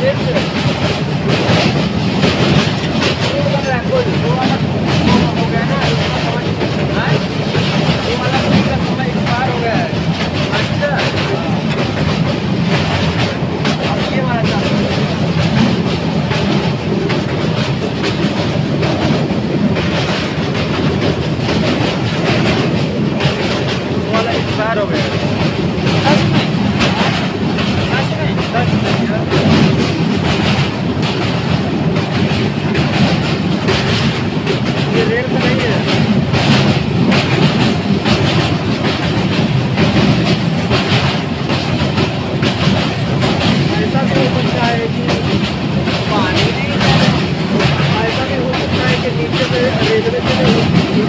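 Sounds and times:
clickety-clack over rail joints: 0.0 - 51.0
rattling clatter: 0.0 - 51.0
train wheels rumbling on rails: 0.0 - 51.0.

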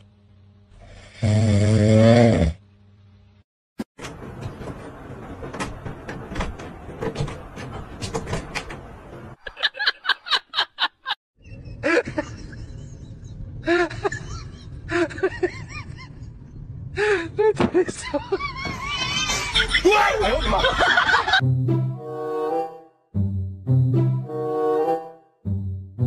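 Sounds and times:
cupboard door rattling: 4.1 - 9.4.

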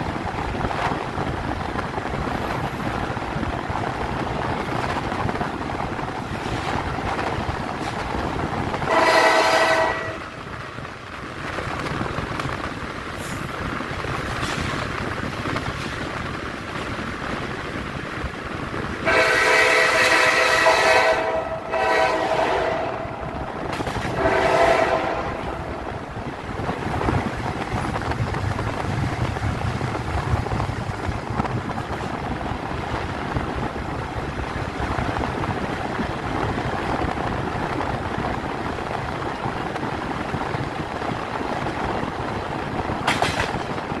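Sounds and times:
train rumbling along track: 0.0 - 44.0
train horn: 8.9 - 10.4, 19.0 - 23.4, 24.0 - 25.9.

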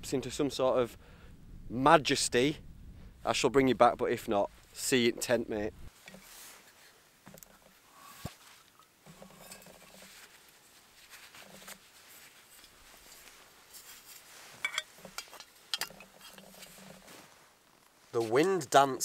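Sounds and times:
fabric pouch rustling: 8.1 - 18.2
light metallic clinks: 14.6 - 16.9.

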